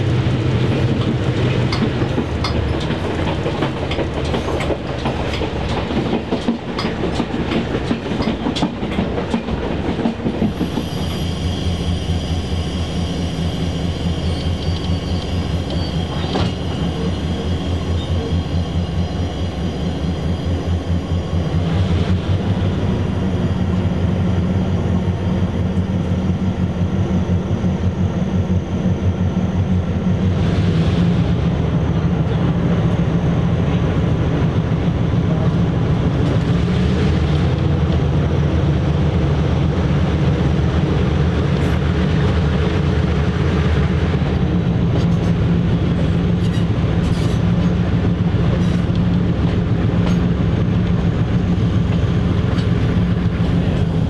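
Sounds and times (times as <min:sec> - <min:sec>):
diesel locomotive engine running: 0:00.0 - 0:54.0
train wheels clicking over rail joints: 0:00.5 - 0:11.1, 0:41.4 - 0:54.0
faint high whine: 0:10.9 - 0:30.3.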